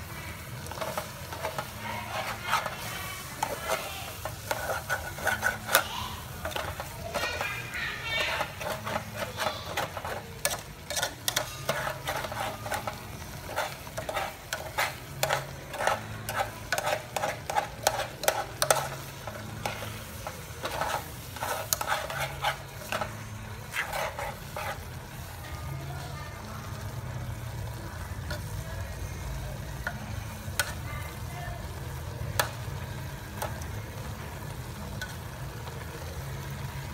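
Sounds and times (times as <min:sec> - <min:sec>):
food sizzling: 0:00.0 - 0:36.9
metal spoon scraping a pot: 0:00.6 - 0:25.3, 0:29.8 - 0:30.9.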